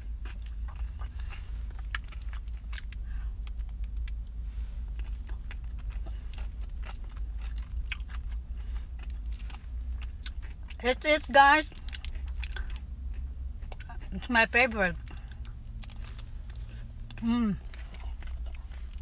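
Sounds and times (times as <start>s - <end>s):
low car rumble: 0.0s - 19.0s
crunching ice cream bar: 0.1s - 10.8s.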